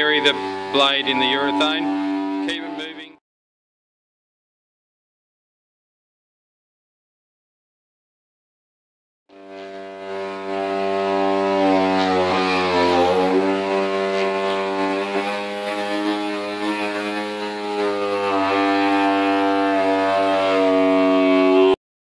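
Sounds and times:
power cutter blade whining: 0.0 - 3.1, 9.3 - 21.8.

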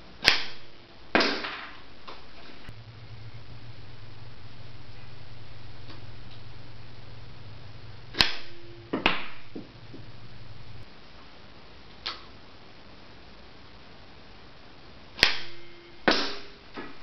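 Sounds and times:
catapult arm snapping: 0.2 - 0.6, 8.1 - 9.4, 15.2 - 16.5.

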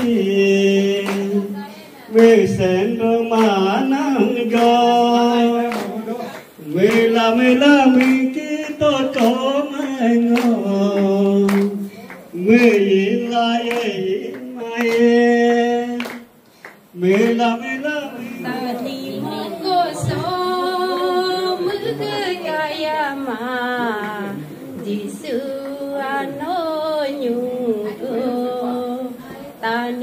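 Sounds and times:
person singing gospel: 0.0 - 30.0
woman singing: 18.4 - 30.0.

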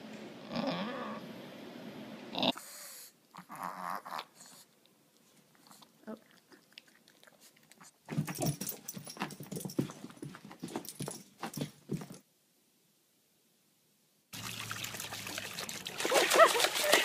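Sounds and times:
clattering and scuffling: 8.1 - 12.2.

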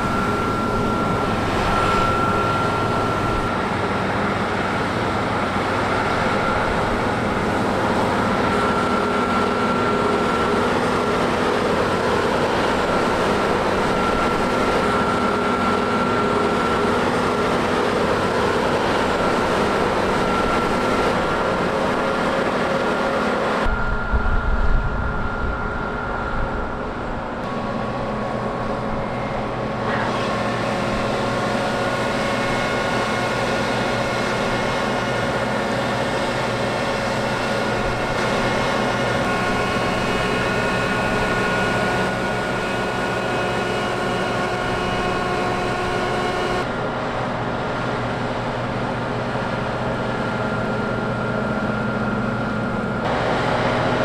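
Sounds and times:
combine harvester drone: 0.0 - 54.0
thin high whine: 0.0 - 54.0
low buffeting rumble: 23.6 - 29.8.

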